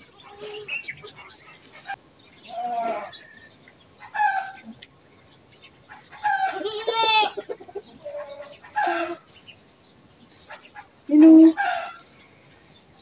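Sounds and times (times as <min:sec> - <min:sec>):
chickens squawking: 0:00.0 - 0:04.8, 0:05.7 - 0:09.4, 0:10.4 - 0:12.1.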